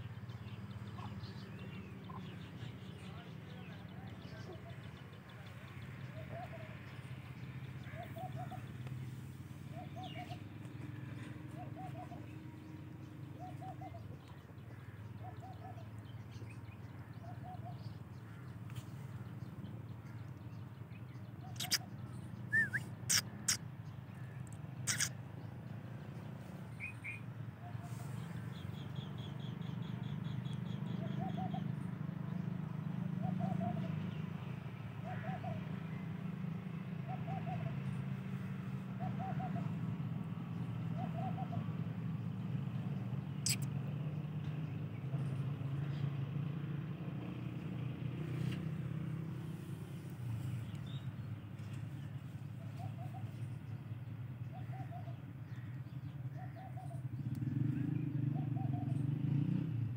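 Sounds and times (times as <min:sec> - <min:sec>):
bird short low call: 0:22.5 - 0:23.6, 0:24.9 - 0:25.2.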